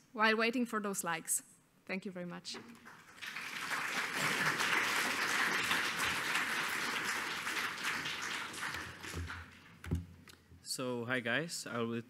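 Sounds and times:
audience applauding: 2.8s - 9.9s.

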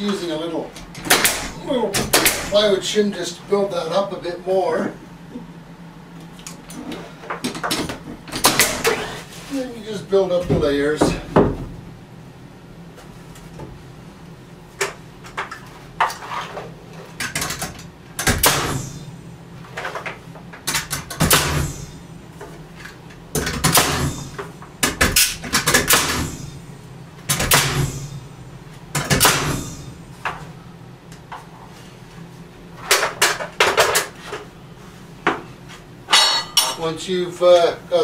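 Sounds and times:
nail gun shots into wood: 1.0s - 2.5s, 8.4s - 8.9s, 18.2s - 18.9s, 20.8s - 21.7s, 23.4s - 24.2s, 24.8s - 26.3s, 27.3s - 27.9s, 29.0s - 29.6s.

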